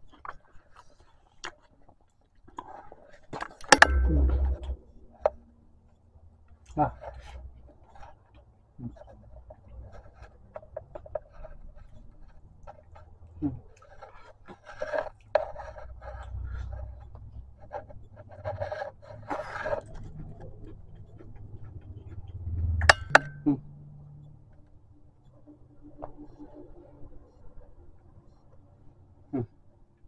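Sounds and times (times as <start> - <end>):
person chewing food: 0.0 - 23.4.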